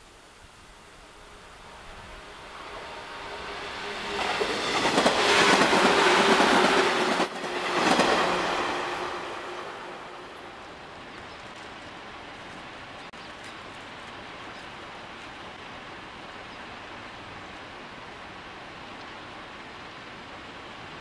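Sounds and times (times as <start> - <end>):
train passing: 0.0 - 12.8.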